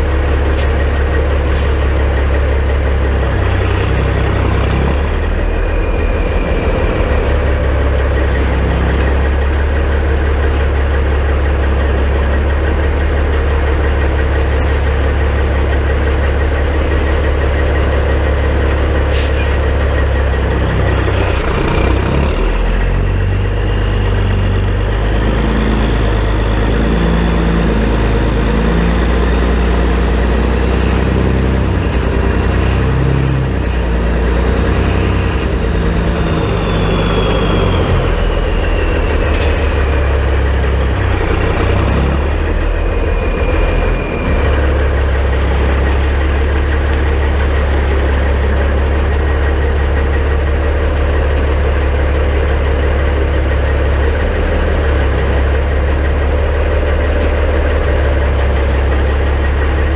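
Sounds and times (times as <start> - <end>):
truck diesel engine idling: 0.0 - 59.9
thin whine: 0.4 - 10.7, 25.8 - 49.1.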